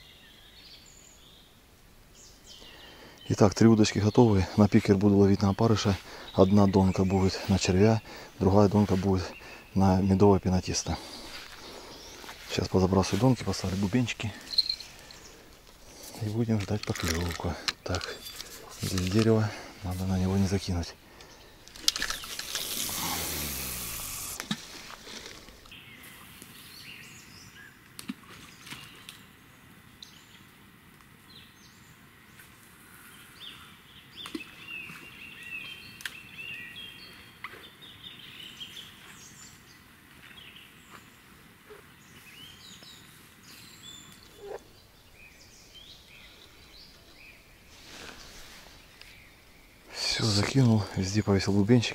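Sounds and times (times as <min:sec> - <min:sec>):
bird chirps: 0:11.0 - 0:15.4, 0:41.7 - 0:47.7
fishing line whizzing off reel: 0:21.9 - 0:24.7.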